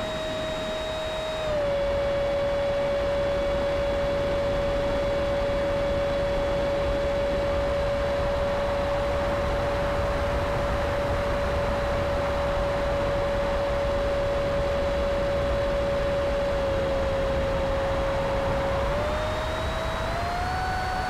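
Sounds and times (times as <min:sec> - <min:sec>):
model plane motor whining: 0:00.0 - 0:03.6, 0:14.6 - 0:21.0.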